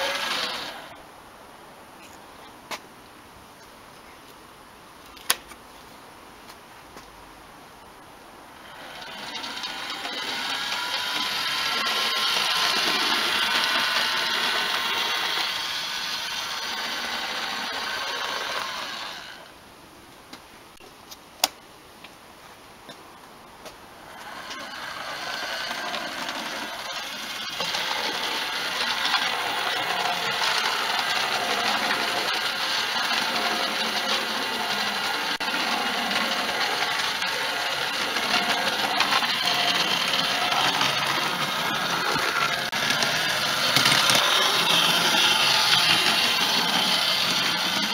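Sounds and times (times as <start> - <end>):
toy train motor whirring: 0.0 - 0.9, 8.6 - 19.5, 24.0 - 47.9.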